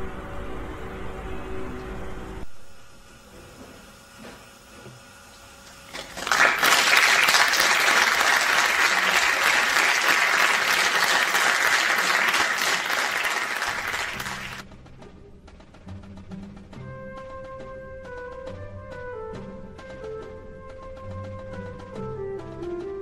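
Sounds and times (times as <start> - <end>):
audience applauding: 5.8 - 14.6.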